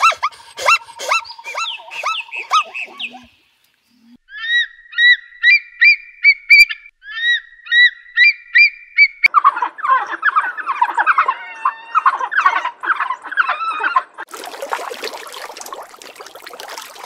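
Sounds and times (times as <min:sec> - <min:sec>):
chattering bird calls: 0:00.6 - 0:03.4.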